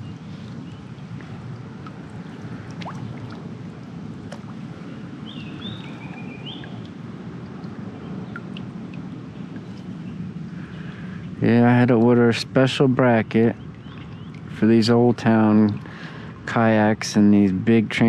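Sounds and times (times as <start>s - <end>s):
water and wind rushing: 0.0s - 17.0s.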